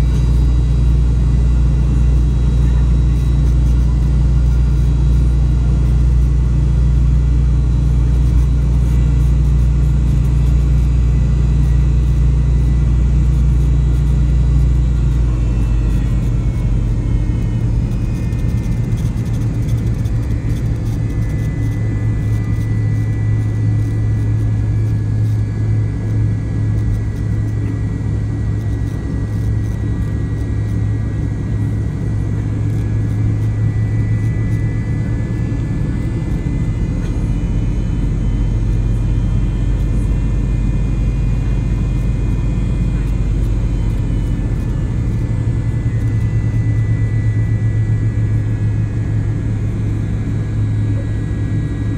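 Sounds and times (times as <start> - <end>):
aircraft engines low rumble: 0.0 - 51.9
faint steady whine: 0.0 - 51.9.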